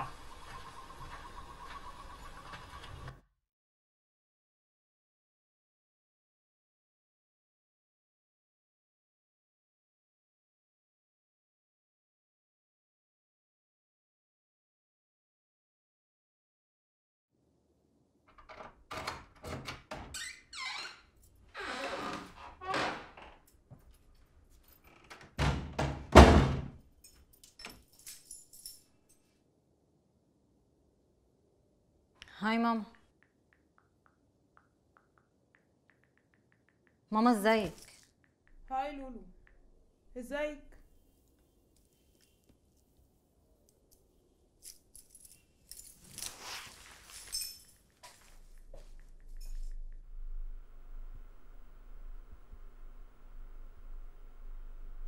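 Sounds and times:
wooden door shutting with thud: 0:25.1 - 0:26.8
metal objects jingling: 0:27.0 - 0:29.3, 0:44.6 - 0:49.9
rustling: 0:40.8 - 0:50.1
low steady hum: 0:48.2 - 0:55.0.

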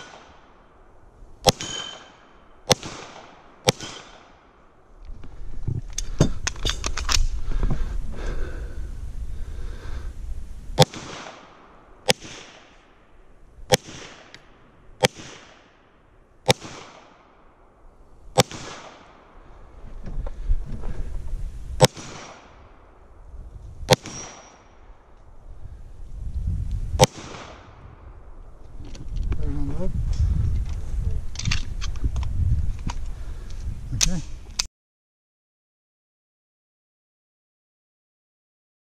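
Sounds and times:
pistol shots echoing: 0:01.4 - 0:04.5, 0:10.8 - 0:12.9, 0:13.7 - 0:15.8, 0:16.4 - 0:17.5, 0:18.4 - 0:19.3, 0:21.8 - 0:22.5, 0:23.9 - 0:24.7.

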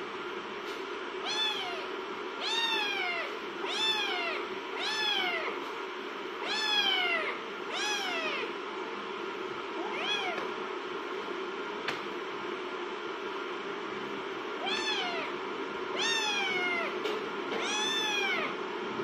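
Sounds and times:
low background hum: 0:00.0 - 0:19.0
kittens meowing: 0:01.2 - 0:05.6, 0:06.4 - 0:08.5, 0:09.8 - 0:10.5, 0:16.0 - 0:17.0, 0:17.6 - 0:18.6.

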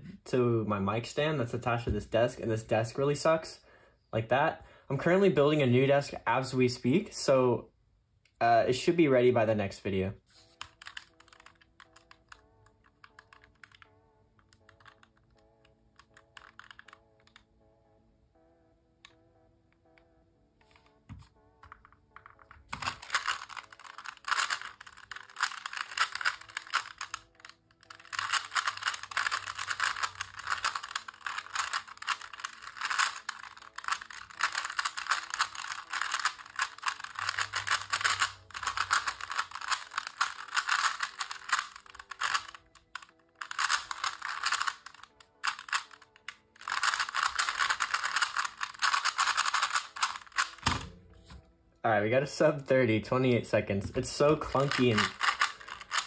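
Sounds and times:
puzzle cube clacking: 0:10.3 - 0:17.5, 0:19.8 - 0:51.4, 0:53.8 - 0:56.0.

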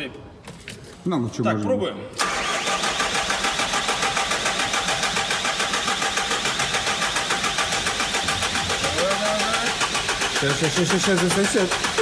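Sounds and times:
diesel engine cranking on starter: 0:02.2 - 0:12.0.

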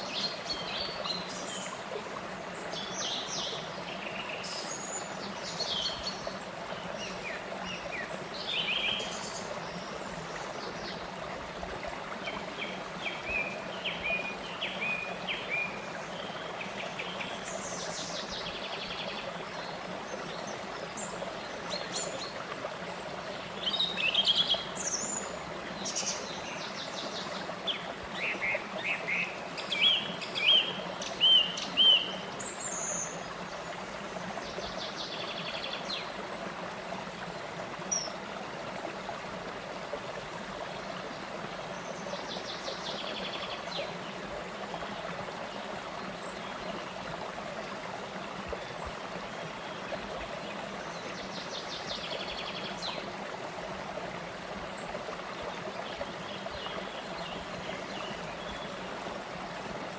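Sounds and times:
songbirds chirping: 0:00.0 - 0:59.8
stream flowing over cascades: 0:00.0 - 0:59.9.

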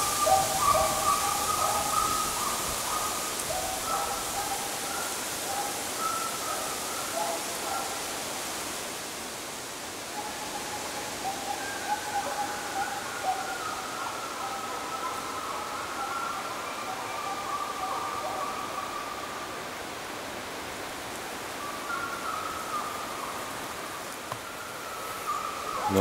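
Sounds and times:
steady hiss: 0:00.0 - 0:26.0
hounds baying: 0:00.1 - 0:08.1, 0:25.2 - 0:26.0.

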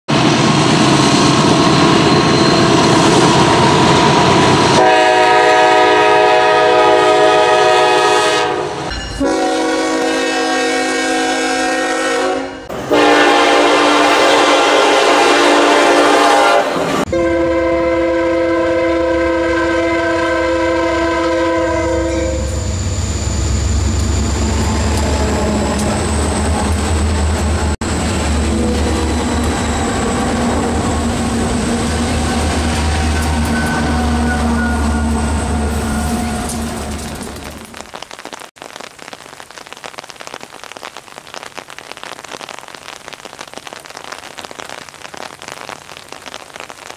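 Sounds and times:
train rumbling past: 0:00.1 - 0:37.7
locomotive air horn blasts: 0:04.7 - 0:23.0, 0:28.4 - 0:30.2, 0:31.2 - 0:37.0.

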